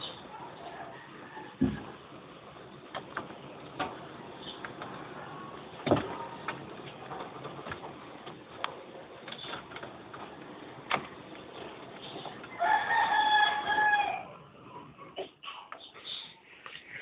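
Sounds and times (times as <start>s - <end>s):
rooster crowing: 0.6s - 2.0s, 12.5s - 14.4s.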